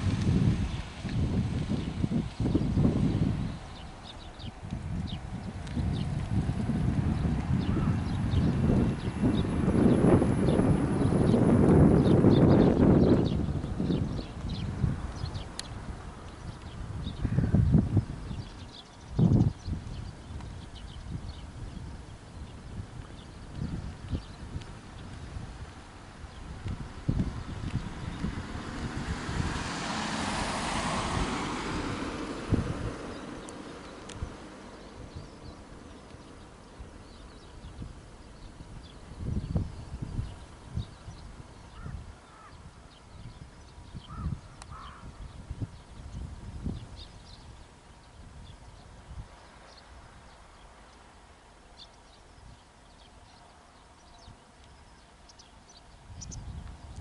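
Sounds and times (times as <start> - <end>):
car passing: 0.0 - 14.0, 25.6 - 38.6
wind rumble on microphone: 0.0 - 57.0.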